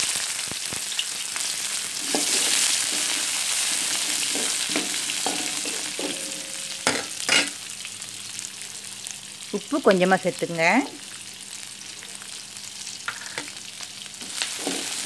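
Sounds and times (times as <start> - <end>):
onions sizzling in hot oil: 0.0 - 15.0
spatula scraping wok: 1.9 - 7.6, 13.1 - 13.6, 14.2 - 15.0.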